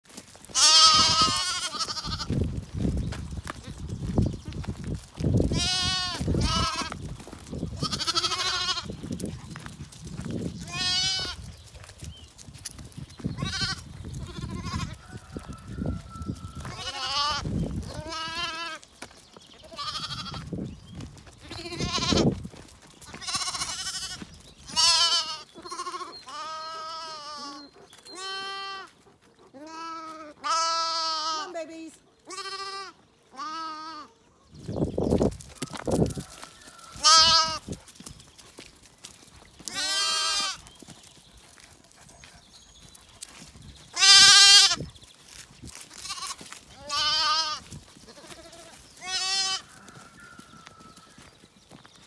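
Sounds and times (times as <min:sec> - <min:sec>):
lambs bleating: 0:00.5 - 0:02.4, 0:05.4 - 0:07.0, 0:07.7 - 0:09.0, 0:10.6 - 0:11.5, 0:13.4 - 0:15.0, 0:16.5 - 0:18.8, 0:19.7 - 0:20.4, 0:21.4 - 0:22.3, 0:23.1 - 0:28.9, 0:29.6 - 0:31.6, 0:32.3 - 0:34.1, 0:36.9 - 0:37.6, 0:39.7 - 0:40.6, 0:43.9 - 0:44.8, 0:45.9 - 0:49.8.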